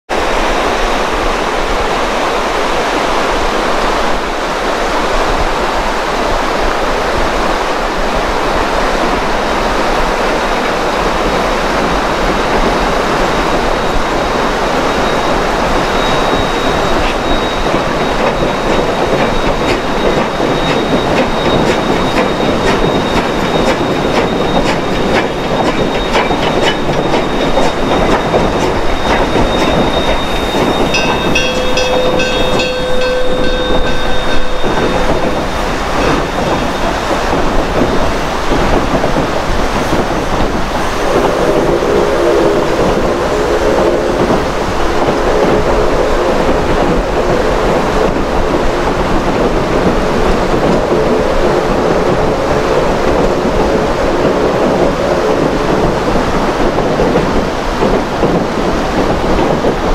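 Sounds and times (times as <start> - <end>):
steady rushing noise: 0.1 - 59.9
thin high squeal: 13.8 - 37.4
wheels clicking over rail joints: 16.8 - 41.7.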